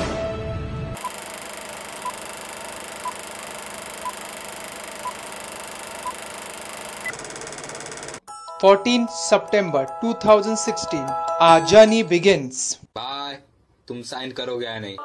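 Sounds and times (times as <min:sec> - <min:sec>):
projector whirring: 0:01.0 - 0:08.2
short beeps: 0:02.0 - 0:02.4, 0:06.0 - 0:07.1.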